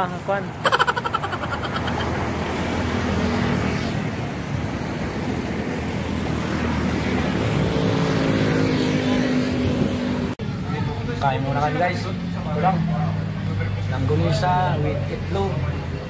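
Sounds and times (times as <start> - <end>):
highway traffic rushing: 0.0 - 16.0.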